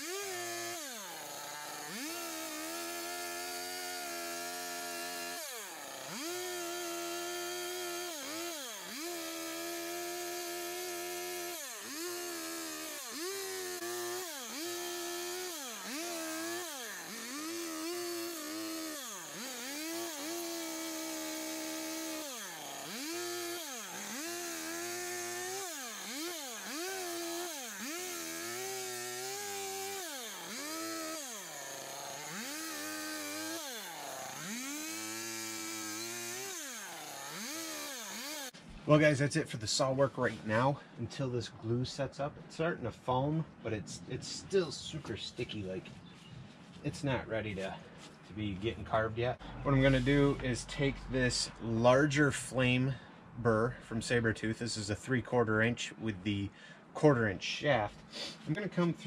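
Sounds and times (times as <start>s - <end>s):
chainsaw cutting log: 0.0s - 39.0s, 48.9s - 53.0s.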